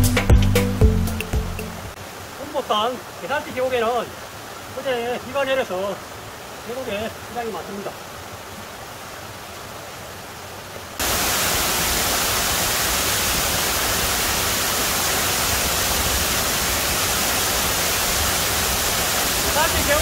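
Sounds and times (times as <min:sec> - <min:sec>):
stream running over rocks: 0:01.9 - 0:20.0
waterfall pouring into pool: 0:11.0 - 0:20.0.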